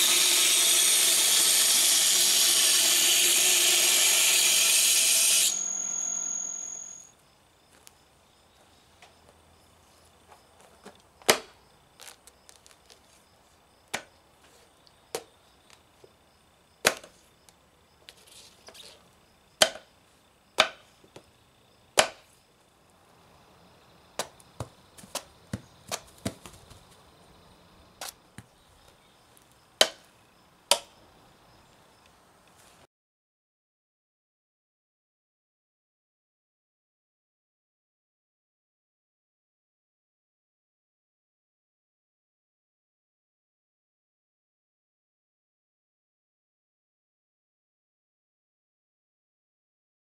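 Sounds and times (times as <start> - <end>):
knife chopping squash on wood: 16.8 - 17.1, 19.6 - 19.9, 20.6 - 20.8, 22.0 - 22.3, 24.2 - 26.8, 29.8 - 30.0.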